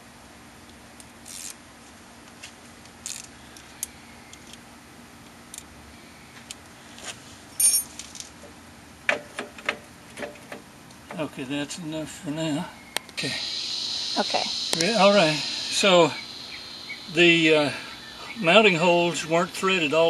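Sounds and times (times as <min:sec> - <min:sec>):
metallic ring: 0:07.6 - 0:07.9
steady low hum: 0:11.4 - 0:20.0.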